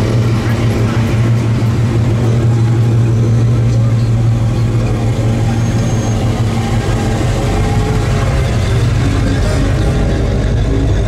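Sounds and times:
car engines droning: 0.0 - 11.0.

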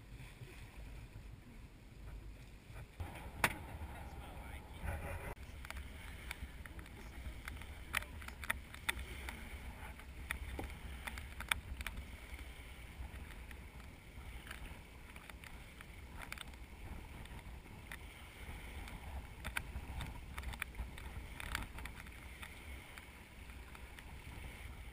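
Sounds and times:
water rushing along hull: 0.0 - 24.9
wind buffeting microphone: 2.8 - 24.9
sharp knocks: 3.1 - 3.8.

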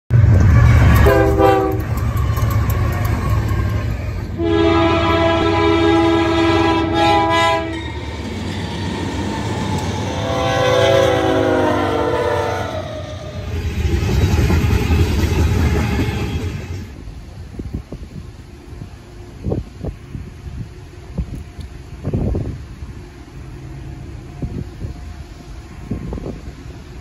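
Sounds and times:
locomotive horn blasts: 0.1 - 2.1, 4.3 - 8.0, 9.8 - 13.3
engine and rail rumble: 0.1 - 27.0.

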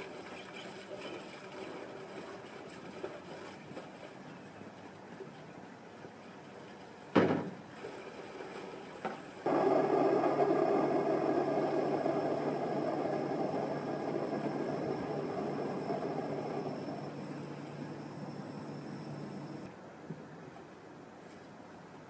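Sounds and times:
fountain pump humming: 0.0 - 5.0, 7.7 - 19.7.

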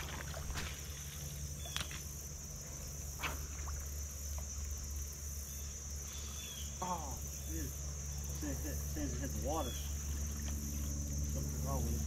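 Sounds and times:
crickets chirring: 0.0 - 12.0
low steady rumble: 0.0 - 12.0.

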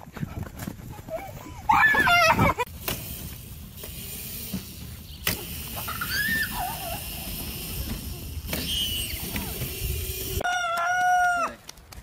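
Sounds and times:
outdoor rumble: 0.0 - 10.5
electric dirt bike motor: 2.1 - 10.4.

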